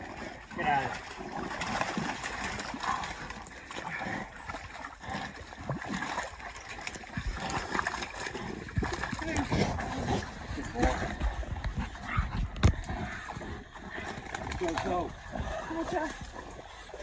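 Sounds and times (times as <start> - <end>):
mud and water splashing: 0.0 - 17.0
animal noises: 7.3 - 17.0.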